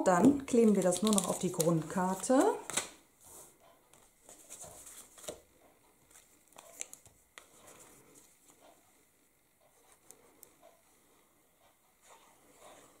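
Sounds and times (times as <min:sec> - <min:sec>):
card stock rustling: 0:00.6 - 0:03.0, 0:04.0 - 0:08.6.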